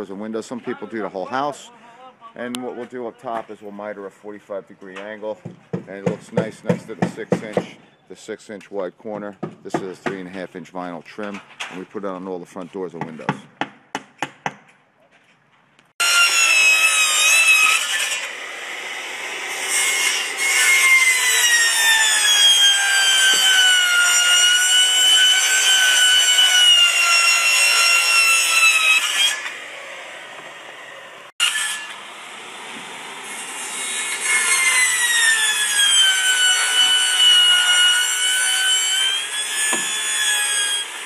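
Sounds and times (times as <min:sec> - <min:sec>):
circular saw cutting siding: 0:04.9 - 0:07.9, 0:16.0 - 0:41.0.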